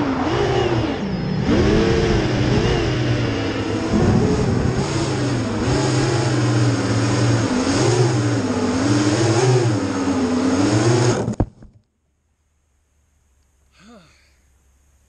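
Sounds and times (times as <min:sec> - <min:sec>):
drone motors whining: 0:00.0 - 0:11.6.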